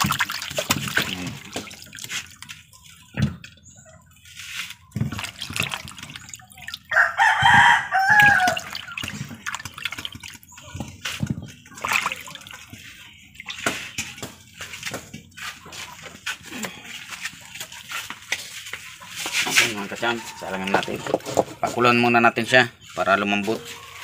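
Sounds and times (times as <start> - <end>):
water splashing and dripping: 0.0 - 3.6, 4.2 - 21.7
rooster crowing: 6.9 - 9.0, 20.0 - 21.2.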